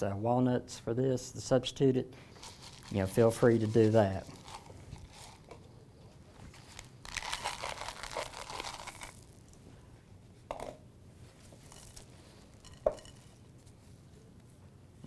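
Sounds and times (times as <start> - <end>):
chocolate chips pouring into bowl: 2.4 - 5.4, 6.7 - 9.4, 11.6 - 13.2.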